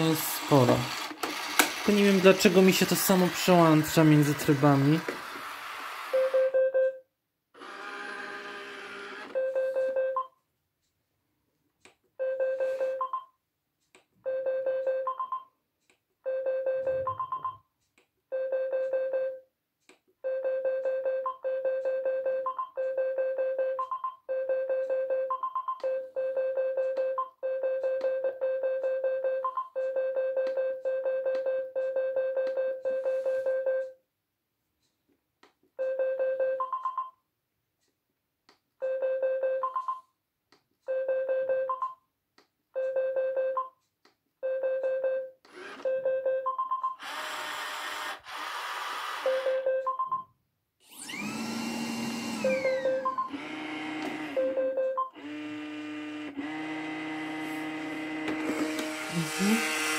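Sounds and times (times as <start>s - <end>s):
motor whirring: 3.1s - 6.2s, 7.6s - 9.4s, 47.0s - 49.4s, 50.8s - 54.6s, 55.2s - 59.9s.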